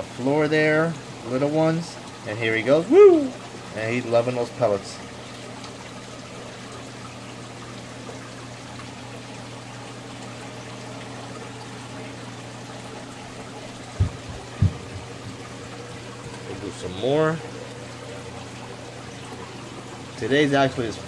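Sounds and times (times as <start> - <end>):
aquarium water trickling: 0.0 - 21.0
short low thumps: 13.9 - 15.6.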